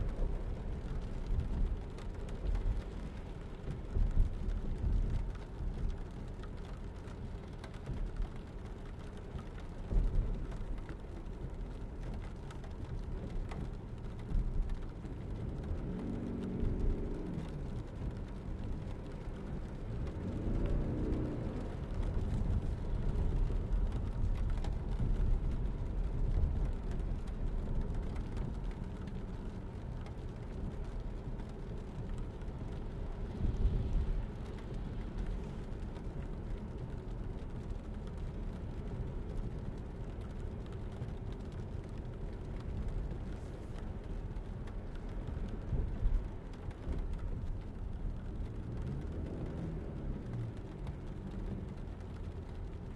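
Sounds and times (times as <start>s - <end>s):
road and tyre rumble: 0.0s - 52.9s.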